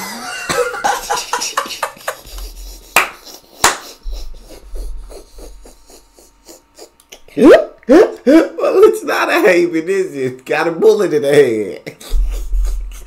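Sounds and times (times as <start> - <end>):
breathy laughter: 0.0 - 7.3, 11.8 - 13.0.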